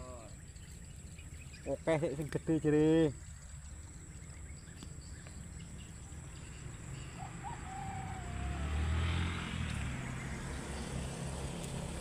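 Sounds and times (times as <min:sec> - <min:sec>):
motorbike engine passing: 0:06.2 - 0:12.0.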